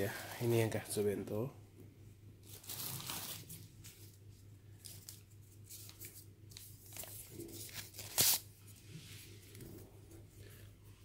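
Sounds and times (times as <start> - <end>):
food packaging rustling: 2.4 - 4.2.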